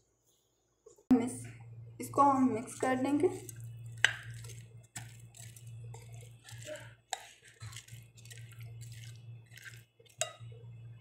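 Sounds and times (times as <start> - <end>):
spoon stirring wet salad: 2.1 - 11.0.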